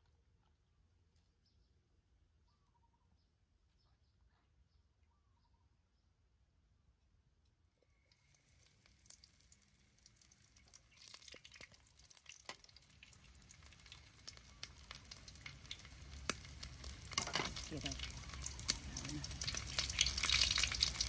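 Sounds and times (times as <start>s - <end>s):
food sizzling in hot oil: 8.1s - 21.0s.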